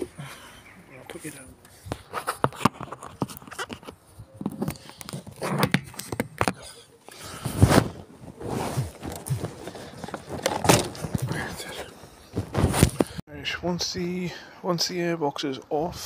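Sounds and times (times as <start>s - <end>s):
plastic parts knocking and scraping: 1.9s - 6.7s, 8.8s - 11.5s
phone being set down: 10.4s - 11.1s.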